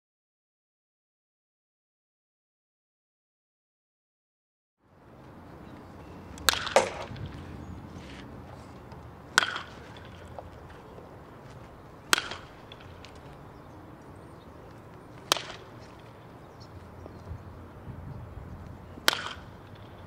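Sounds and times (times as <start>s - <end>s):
baseball bat hitting ball: 6.3s - 13.5s, 14.5s - 16.3s, 18.9s - 20.0s.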